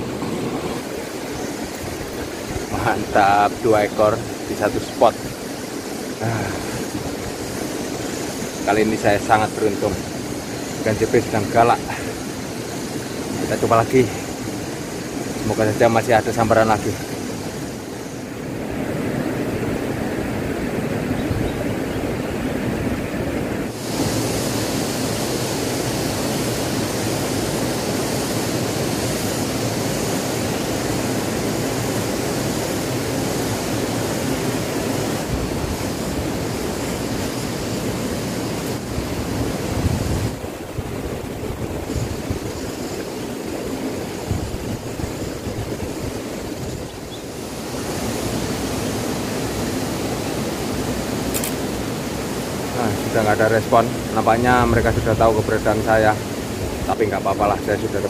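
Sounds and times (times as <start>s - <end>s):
river water flowing: 0.0s - 58.0s
wind on microphone: 0.0s - 58.0s.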